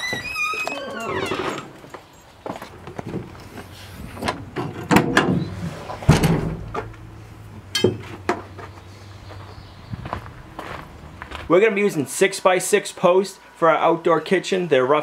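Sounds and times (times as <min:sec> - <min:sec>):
glass window swinging open: 0:00.0 - 0:01.7.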